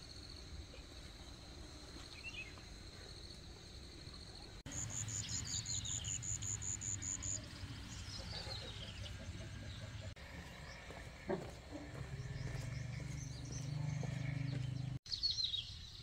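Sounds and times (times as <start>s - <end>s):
high insect drone: 0.0s - 8.1s.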